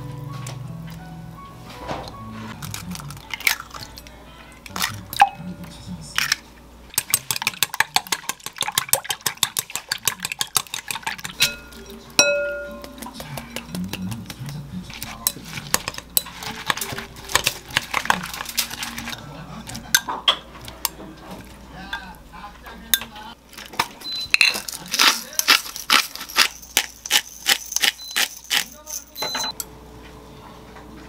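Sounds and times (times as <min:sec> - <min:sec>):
stirring scraping in bowl: 0:06.2 - 0:11.9, 0:12.7 - 0:21.8
whisk clicking against glass bowl: 0:06.9 - 0:14.4
glass clinking on glass: 0:11.4 - 0:13.8, 0:27.8 - 0:29.6.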